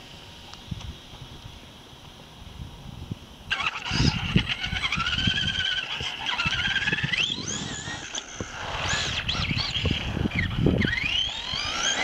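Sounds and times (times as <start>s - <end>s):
electric motor whining: 3.5s - 12.0s.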